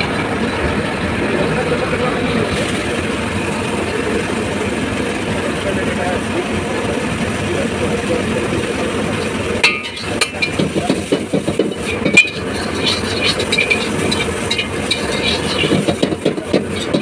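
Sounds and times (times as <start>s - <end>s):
gas burner roaring: 0.0s - 17.0s
metal ladle scraping a wok: 9.2s - 17.0s.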